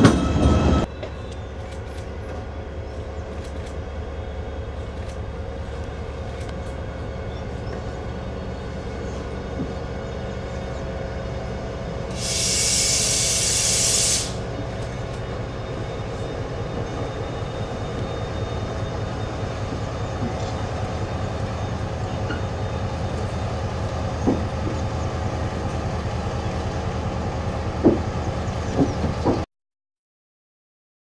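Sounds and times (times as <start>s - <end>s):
diesel locomotive engine humming: 0.0s - 29.5s
air hissing: 12.1s - 14.6s.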